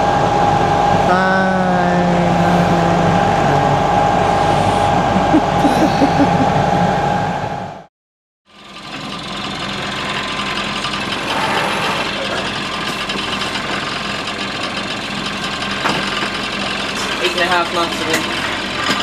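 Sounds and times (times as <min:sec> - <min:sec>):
water noise: 0:00.0 - 0:07.4
boat engine running: 0:00.0 - 0:07.8, 0:08.6 - 0:19.0
wind: 0:08.5 - 0:19.0.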